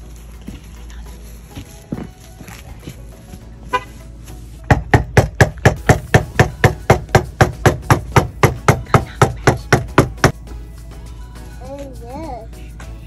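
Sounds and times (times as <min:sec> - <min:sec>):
fist pounding on door: 0:04.7 - 0:10.3.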